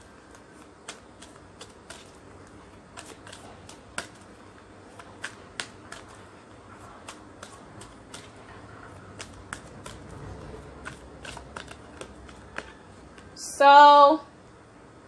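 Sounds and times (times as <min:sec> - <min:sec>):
cards being shuffled: 0:09.1 - 0:13.3.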